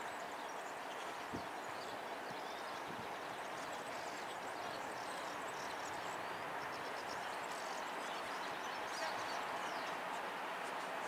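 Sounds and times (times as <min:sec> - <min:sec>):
outdoor background noise: 0:00.0 - 0:11.0.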